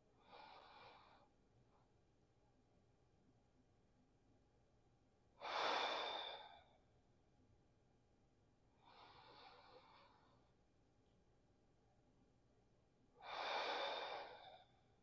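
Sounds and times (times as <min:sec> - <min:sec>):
man breathing deeply: 0:13.2 - 0:14.8.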